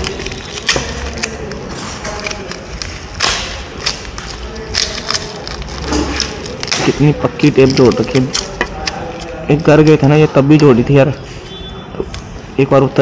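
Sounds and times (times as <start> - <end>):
adhesive tape ripping off paper: 0.0 - 9.4
paper crinkling: 0.0 - 9.7.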